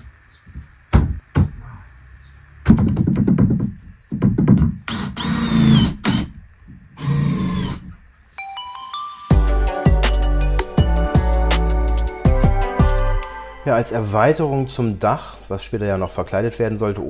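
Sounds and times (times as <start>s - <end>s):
wooden boards knocking: 2.6s - 4.9s
power drill whining: 4.9s - 6.4s, 7.0s - 7.9s.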